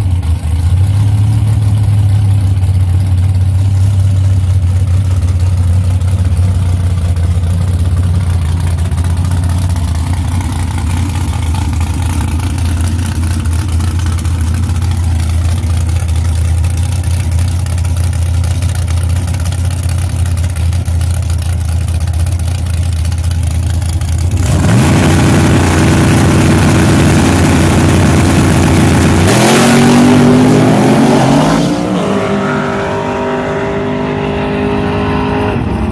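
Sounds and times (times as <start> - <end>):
truck engine revving: 24.2 - 35.9.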